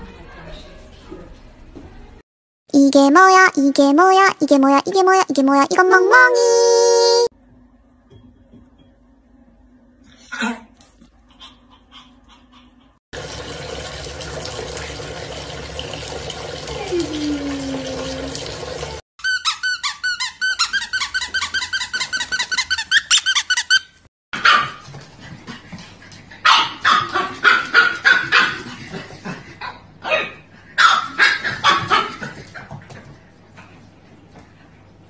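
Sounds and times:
tap water running: 13.2s - 19.0s
puppy yapping barks: 24.4s - 24.8s, 26.4s - 28.6s, 30.0s - 32.2s
puppy yelping: 30.0s - 32.1s.

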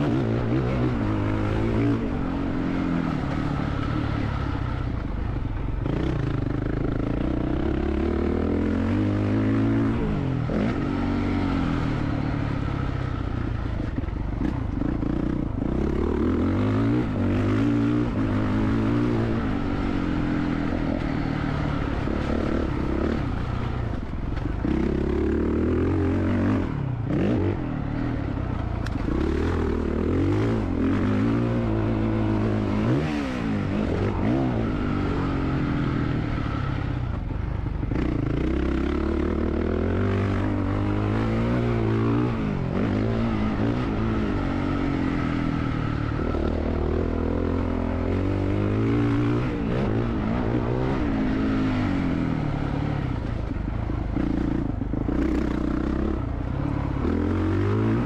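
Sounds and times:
motocross bike engine revving: 28.9s - 36.8s.

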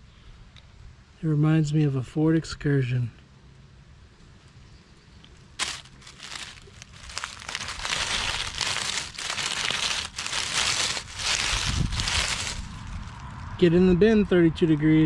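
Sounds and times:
dry leaves crunching: 5.6s - 13.5s.

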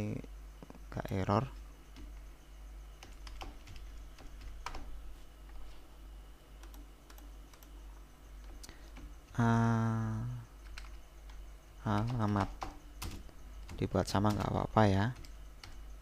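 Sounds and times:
keyboard keystrokes: 3.0s - 4.9s, 10.6s - 15.8s.

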